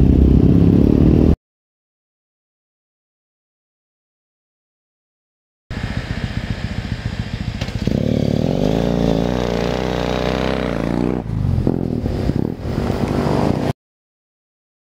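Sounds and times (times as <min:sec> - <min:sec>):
motorcycle engine revving: 0:00.0 - 0:01.4, 0:05.7 - 0:13.7.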